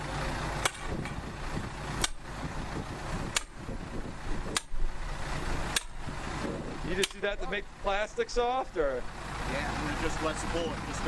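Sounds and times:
sharp clicks: 2.0s - 2.2s, 3.3s - 3.6s, 4.5s - 4.8s, 5.7s - 6.0s, 7.0s - 7.4s.

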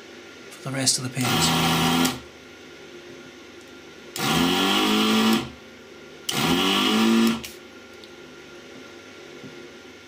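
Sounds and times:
vacuum pump motor spinning up: 1.2s - 2.2s, 4.2s - 5.6s, 6.3s - 7.6s.

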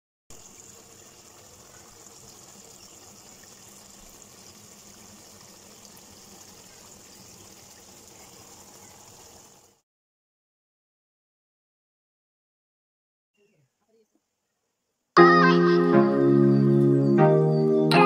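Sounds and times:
curry sizzling in a pan: 0.3s - 9.8s.

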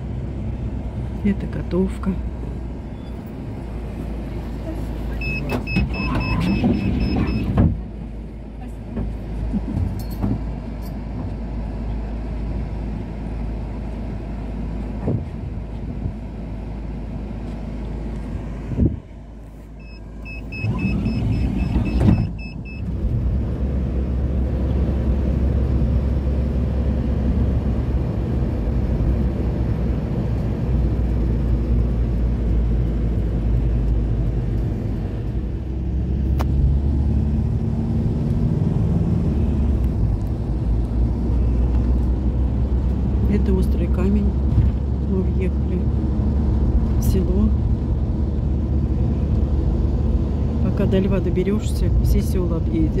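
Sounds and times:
minibus engine idling: 0.0s - 53.0s
minibus pulling away: 0.0s - 53.0s
short electronic beeps: 5.2s - 7.5s, 19.8s - 22.9s.

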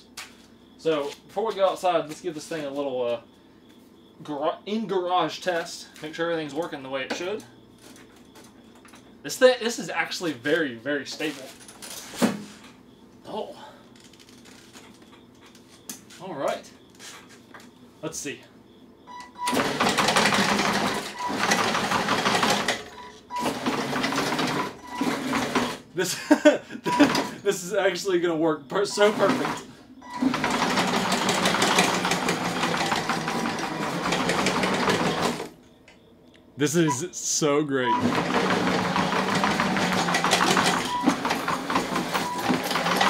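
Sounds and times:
tracked mower motors clattering: 19.4s - 25.8s, 26.9s - 27.6s, 28.9s - 35.6s, 37.8s - 43.0s.

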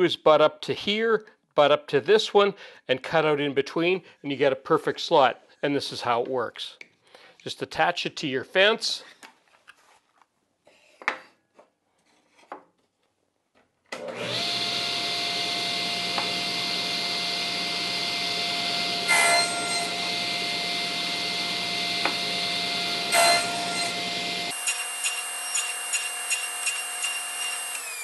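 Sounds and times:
table saw motor whining: 14.0s - 28.0s.

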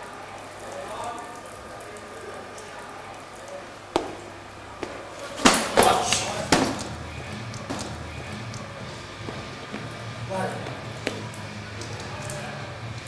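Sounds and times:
meat tray crashing on tiled floor: 4.0s - 7.0s, 7.7s - 8.0s.

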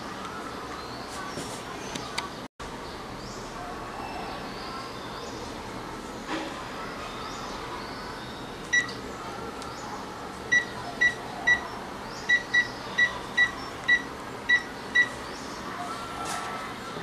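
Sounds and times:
phone keypad beeps: 8.7s - 9.0s, 10.5s - 11.6s, 12.3s - 15.2s.

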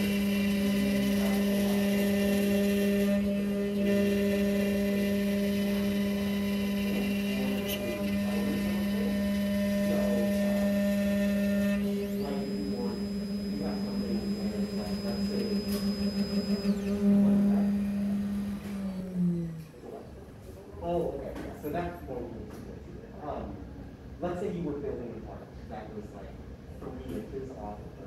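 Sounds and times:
end mill cutting wood: 0.0s - 19.8s
cnc mill spindle whine: 0.0s - 20.2s
high thin steady tone: 6.1s - 19.6s.

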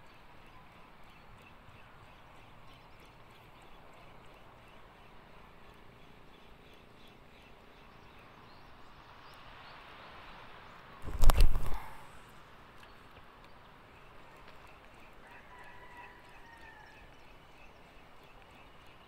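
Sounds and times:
wind and sea water: 0.0s - 19.0s
faint light ticks: 12.3s - 19.0s.

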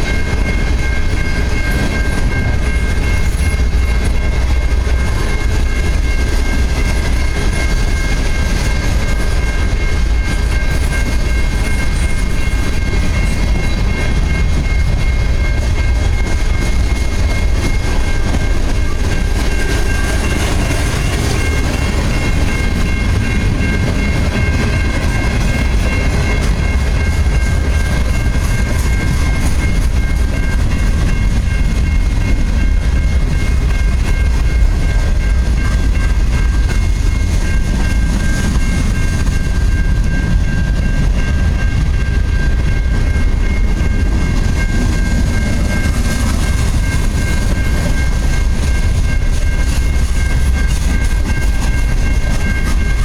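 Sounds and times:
freight train cars rolling: 0.0s - 53.0s
steady high tone: 0.0s - 53.0s.

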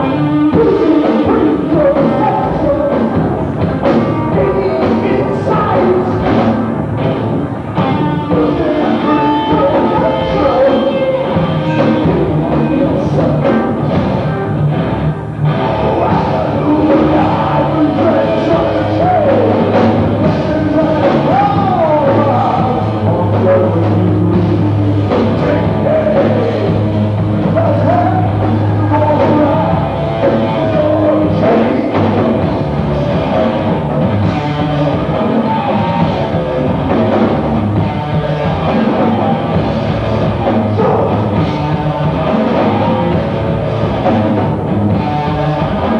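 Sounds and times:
person singing: 0.0s - 6.7s, 7.8s - 14.0s, 15.5s - 45.9s
drum kit: 0.0s - 45.9s
rock band playing: 0.0s - 45.9s.

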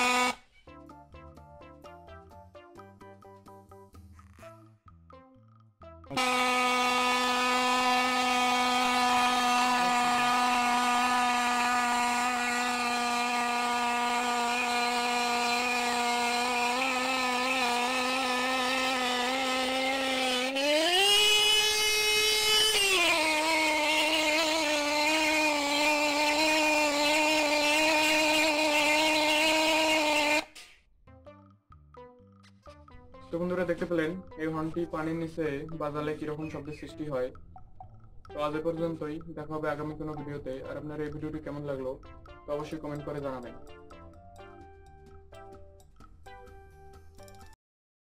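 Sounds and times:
motorcycle horn blaring underwater: 6.1s - 16.8s.

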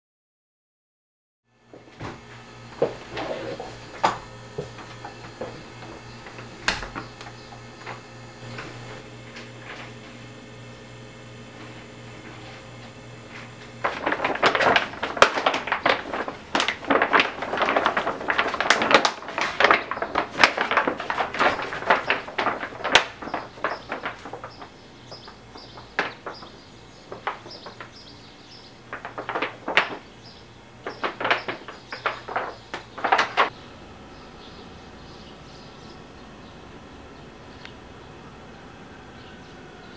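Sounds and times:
rawhide sheet crackling: 2.2s - 10.2s, 11.5s - 33.6s.

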